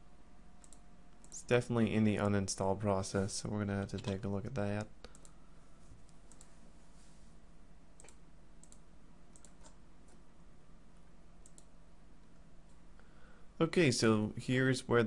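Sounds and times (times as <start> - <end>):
low steady hum: 0.0 - 15.0
computer mouse clicks: 0.6 - 1.4, 4.8 - 5.4, 6.0 - 6.6, 8.0 - 10.2, 11.4 - 12.8.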